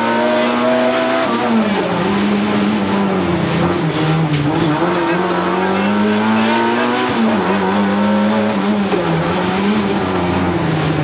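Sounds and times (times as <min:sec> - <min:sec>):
rally car engine revving: 0:00.0 - 0:11.0.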